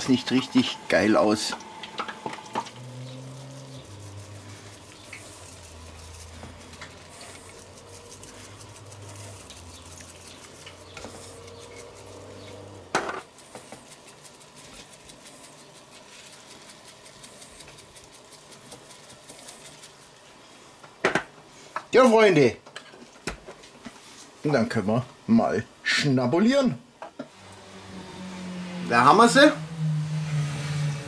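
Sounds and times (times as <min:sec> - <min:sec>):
low hum: 0:00.0 - 0:13.0, 0:27.3 - 0:31.0.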